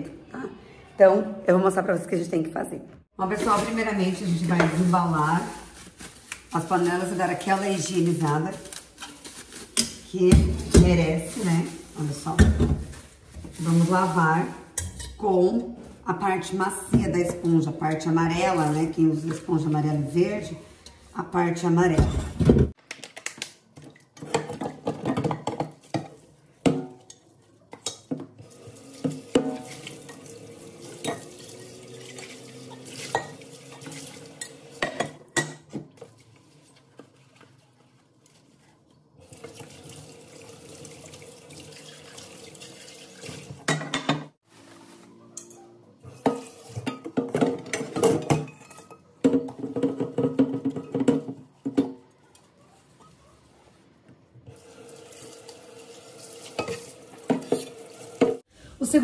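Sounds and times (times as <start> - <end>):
sponge scrubbing pots: 3.2 - 14.7, 23.8 - 58.5
pots clinking against sink: 24.1 - 36.2, 43.4 - 44.4, 45.3 - 52.5, 56.4 - 58.4
tap water running: 28.1 - 44.1, 54.5 - 58.5.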